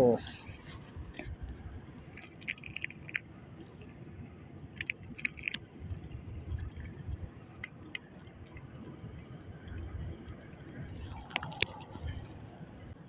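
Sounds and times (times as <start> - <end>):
wind and water rumble: 0.0 - 13.0
clicks and wet squishing: 2.1 - 3.3, 4.8 - 5.7.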